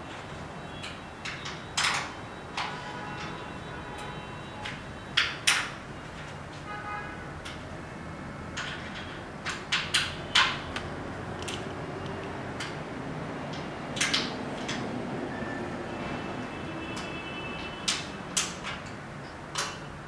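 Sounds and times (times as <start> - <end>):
metal frame pieces clicking: 8.5 - 12.8, 13.5 - 14.9, 17.8 - 20.0.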